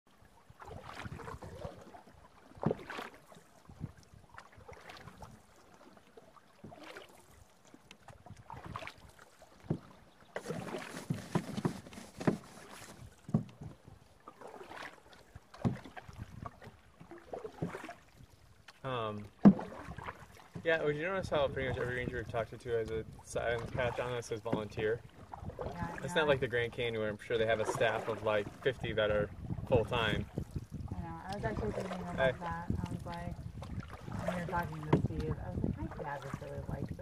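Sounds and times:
canoe paddles splashing in water: 0.1 - 37.0
paddle knocks: 9.6 - 18.0, 18.7 - 20.7.

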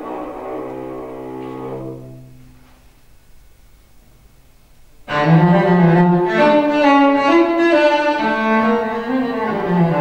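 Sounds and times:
bowed cello note: 0.0 - 2.6.

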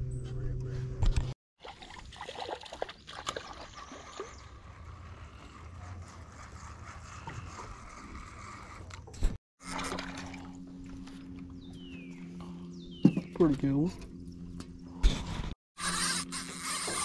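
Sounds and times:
water trickling and lapping: 1.6 - 5.2, 9.6 - 11.6.

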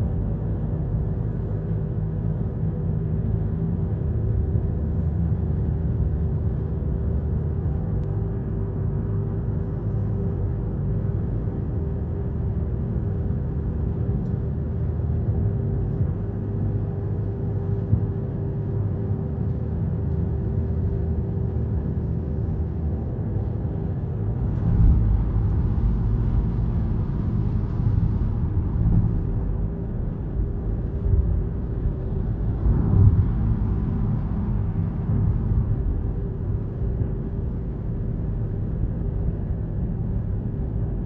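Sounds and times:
faint steady hum: 0.0 - 41.0.

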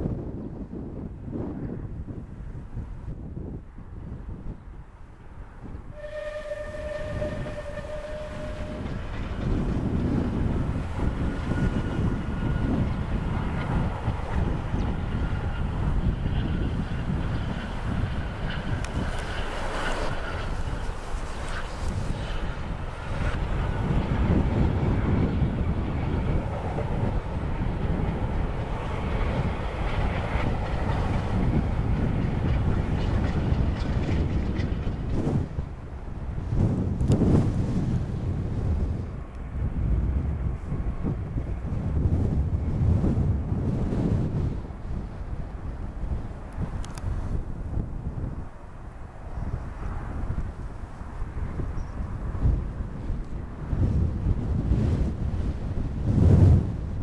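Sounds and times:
locomotive exhaust and train rumble: 0.0 - 57.0
steam locomotive whistle: 5.9 - 9.6.

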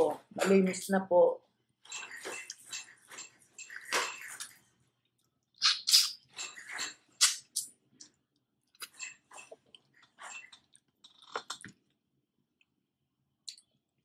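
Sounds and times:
wet smacking and chewing: 2.0 - 12.0.

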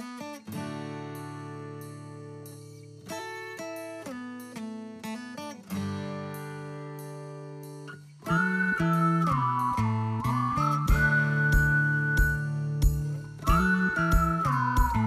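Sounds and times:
plucked guitar-like strings: 3.1 - 15.0.

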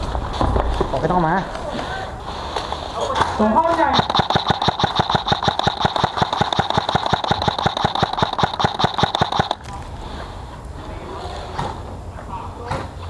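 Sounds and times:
airsoft gun full-auto burst: 3.8 - 9.6.

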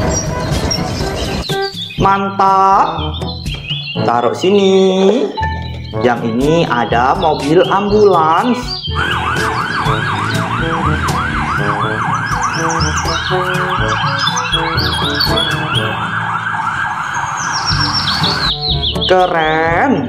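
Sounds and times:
road traffic: 0.0 - 20.0
ambulance siren yelping: 6.6 - 19.1.

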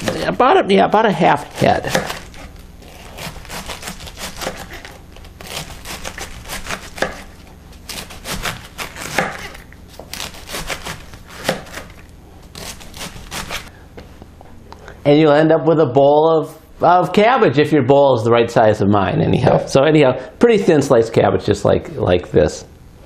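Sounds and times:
knife slicing cabbage: 0.0 - 0.4, 1.4 - 13.7.

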